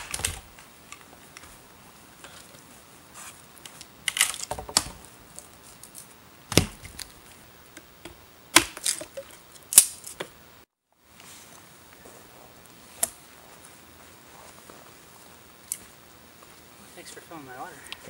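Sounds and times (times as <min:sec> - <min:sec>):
hatchet chopping kindling: 0:06.5 - 0:07.1, 0:07.8 - 0:10.3.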